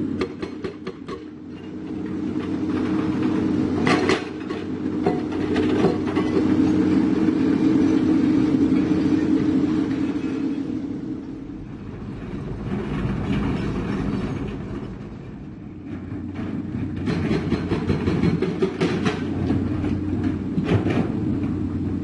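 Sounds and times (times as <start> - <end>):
diesel engine running: 0.0 - 22.0
hydraulic breaker hammering rock: 16.8 - 21.2.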